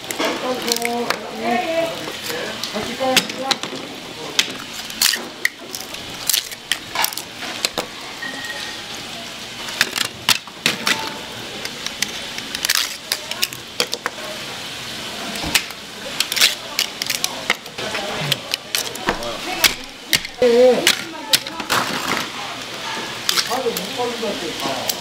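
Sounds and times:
dishes and utensils clinking: 6.9 - 8.9.

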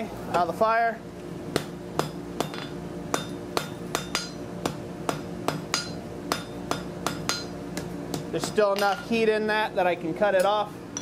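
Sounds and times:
hammer striking steel on anvil: 1.5 - 9.2.

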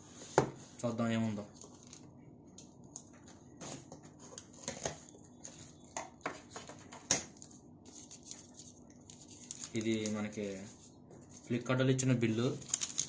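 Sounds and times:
paper being handled: 7.3 - 13.0.

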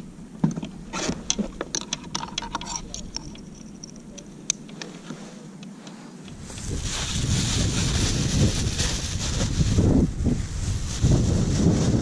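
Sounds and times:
wind buffeting microphone: 6.3 - 12.0.

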